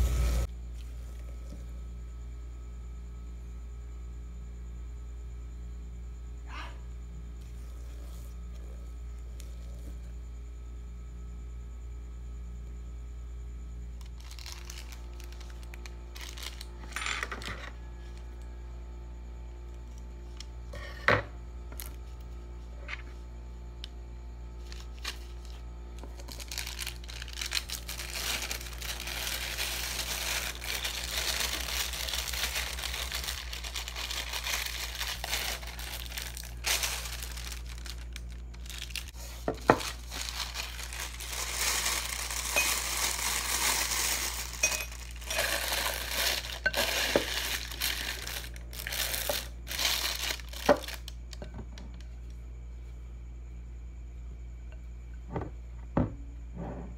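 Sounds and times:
plastic piping bag crinkling: 14.0 - 17.0, 24.6 - 51.3
low hum: 17.6 - 50.9.

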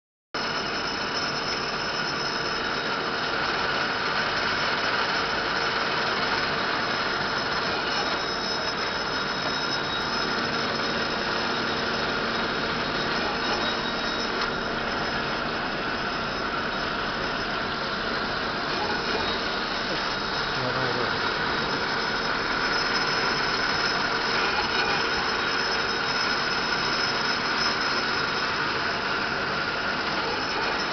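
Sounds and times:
lathe machine whining: 0.4 - 30.9.

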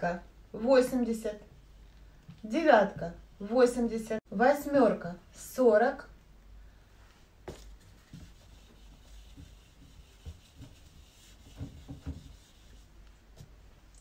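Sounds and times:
eraser rubbing on whiteboard: 7.6 - 13.1.

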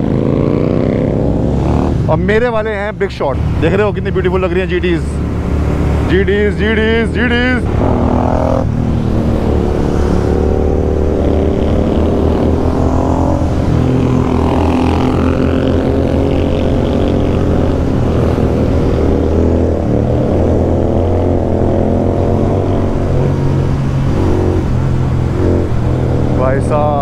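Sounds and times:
motorcycle engines cruising: 0.0 - 27.0.

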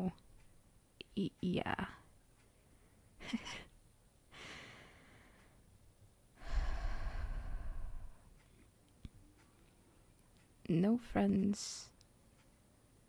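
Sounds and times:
woman breathing close to microphone: 4.3 - 5.6, 6.4 - 8.4
woman sighing: 6.4 - 8.2.

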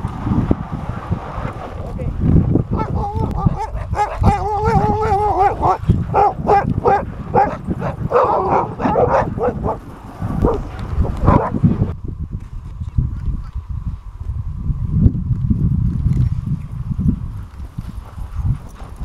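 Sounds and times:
wind rumbling on microphone: 0.0 - 19.0
dog howling: 2.7 - 11.6
dogs barking and yipping: 2.7 - 11.6.

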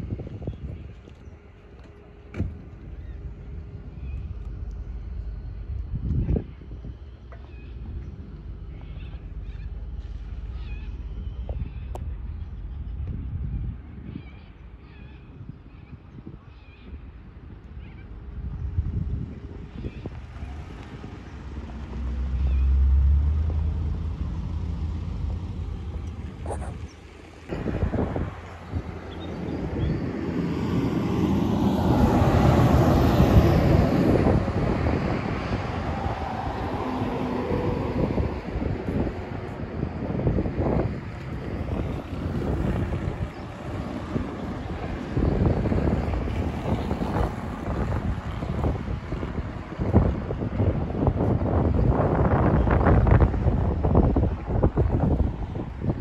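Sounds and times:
vehicle rumbling over bridge: 0.0 - 56.0
wind buffeting microphone: 0.0 - 56.0
bird calls: 6.2 - 13.0.

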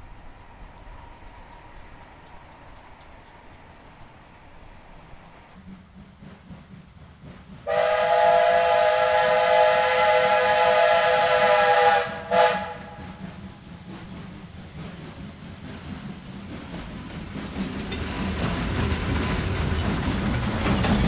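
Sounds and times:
locomotive low rumble: 0.0 - 21.0
steam locomotive whistle: 7.6 - 13.2.

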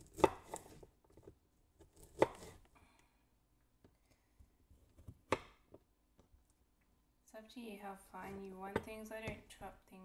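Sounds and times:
knife chopping on wooden board: 0.0 - 0.8, 1.8 - 2.6, 5.0 - 5.7.

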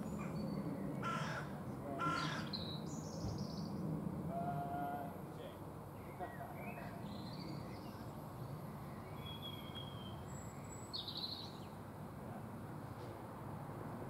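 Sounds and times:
birds chirping: 0.0 - 3.8, 6.0 - 11.8
diesel locomotive engine rumble: 3.1 - 9.1.

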